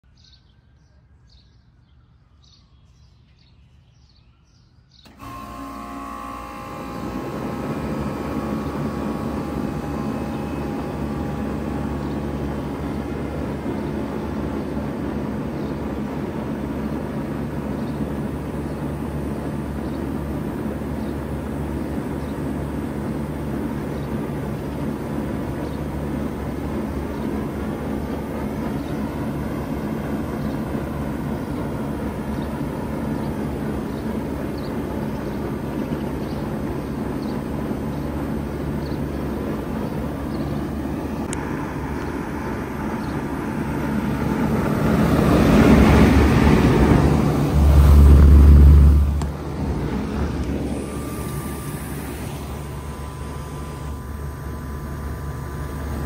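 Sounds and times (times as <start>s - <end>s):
heat pump humming: 5.0s - 56.0s
faint birds chirping: 7.5s - 45.8s.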